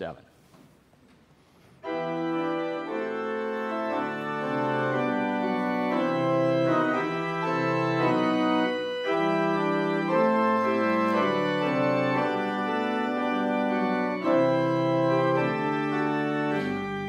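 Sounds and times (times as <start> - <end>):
church organ chords: 1.8 - 17.0.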